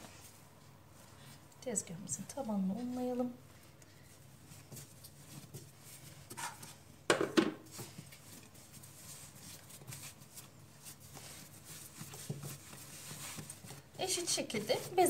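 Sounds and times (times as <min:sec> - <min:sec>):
dough kneading squishing: 0:00.0 - 0:15.0
dough thumps on countertop: 0:07.1 - 0:07.9.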